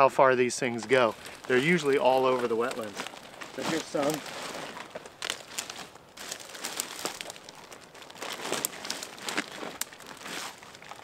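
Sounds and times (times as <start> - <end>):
dry canes crackling and rustling: 0.0 - 11.0.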